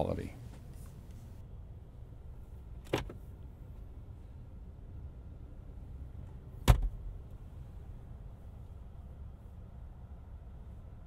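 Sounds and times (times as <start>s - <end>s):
low steady rumble: 0.0s - 11.0s
glove box latch clicking: 2.8s - 3.2s.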